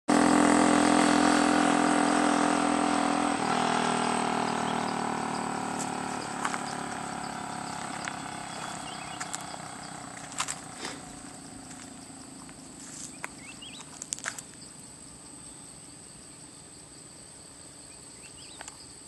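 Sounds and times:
vehicle driving away: 0.1 - 14.6.

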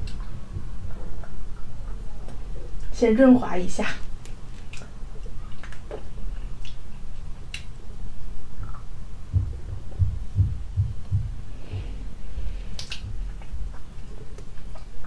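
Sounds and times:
muffled mouth sounds: 8.6 - 15.0.

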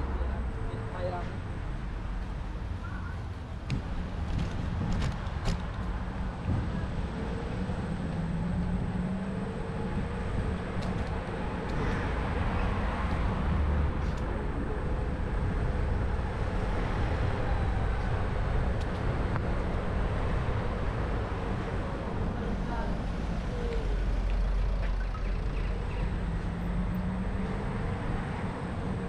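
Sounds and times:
low engine hum: 0.0 - 29.0
vehicle rumble: 0.0 - 29.0.

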